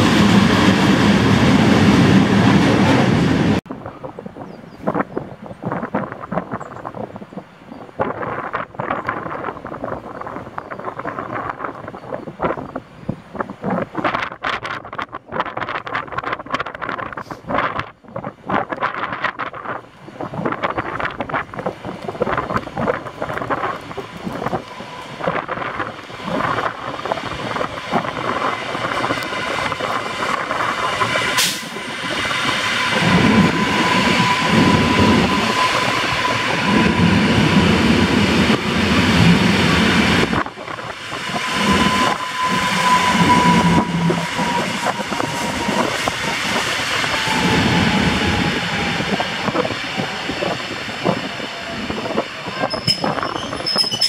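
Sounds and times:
train whine: 0.0 - 4.2, 18.7 - 54.0.

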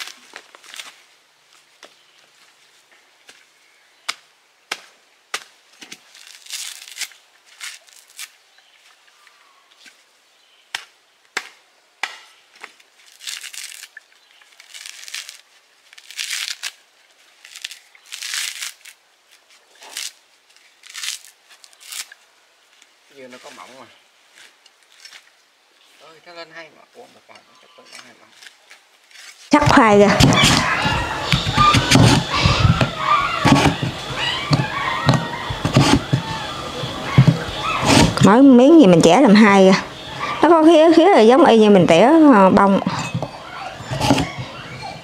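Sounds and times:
fibrous husk ripping: 0.0 - 1.1, 5.4 - 8.4, 12.6 - 22.9, 28.0 - 38.3
machete chopping coconut husk: 4.1 - 8.3, 10.7 - 13.9, 29.1 - 38.4, 43.0 - 44.7.

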